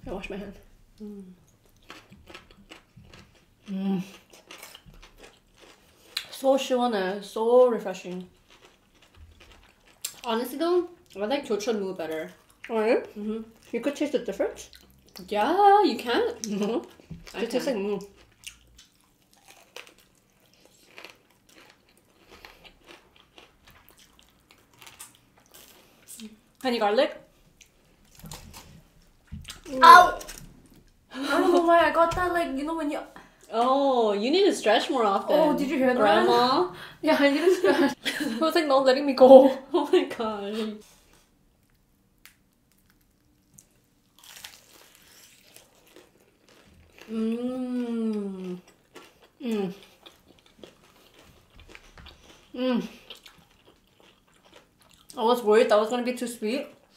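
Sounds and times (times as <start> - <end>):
quiet chewing: 1.0 - 6.4, 8.0 - 10.3, 16.4 - 26.7, 40.8 - 55.2
crunching fried batter: 8.0 - 10.5, 18.0 - 26.4, 41.3 - 47.2, 48.4 - 55.2
biting into crispy food: 18.2 - 25.8, 42.2 - 47.2.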